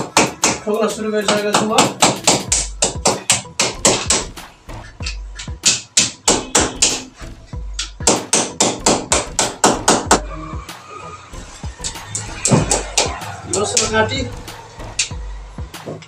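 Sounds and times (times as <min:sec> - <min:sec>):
hammer tapping nails into wall: 0:01.3 - 0:04.3, 0:07.8 - 0:10.1.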